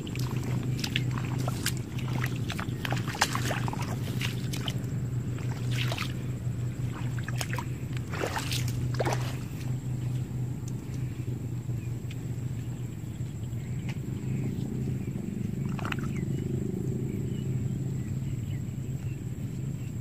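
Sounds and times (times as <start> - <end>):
feet splashing in water: 0.0 - 11.1, 15.6 - 16.2
steady low hum: 0.0 - 20.0.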